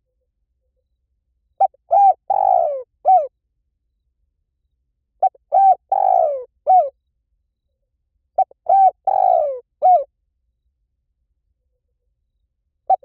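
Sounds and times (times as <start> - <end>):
dove cooing: 1.6 - 3.3, 5.2 - 7.0, 8.4 - 10.1.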